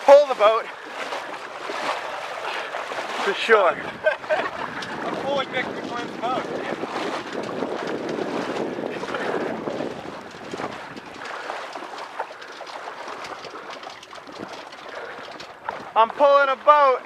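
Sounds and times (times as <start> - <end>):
water sloshing and splashing: 0.0 - 17.0
wind on microphone: 3.6 - 16.2.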